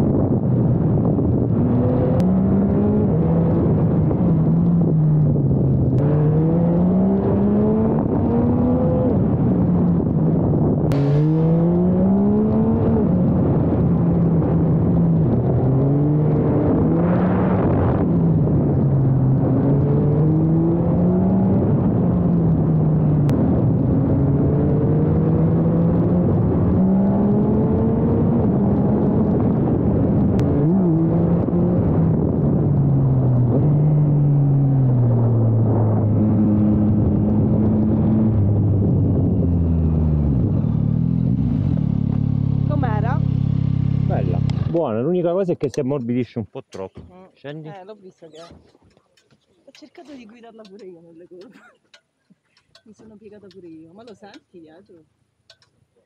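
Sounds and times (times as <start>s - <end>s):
wind rushing across microphone: 0.0s - 44.9s
motorcycle engine revving through gears: 1.2s - 45.0s.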